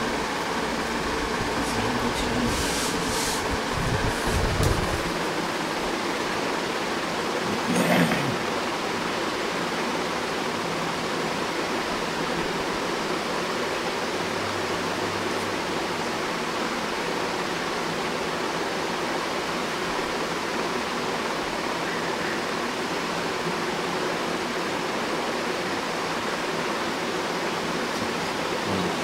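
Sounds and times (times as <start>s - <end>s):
steady background hiss: 0.0s - 29.0s.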